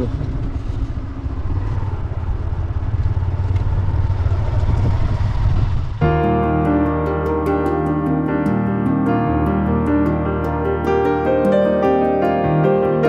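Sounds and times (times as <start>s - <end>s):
motorcycle engine: 0.0s - 13.0s
piano music: 6.0s - 13.0s.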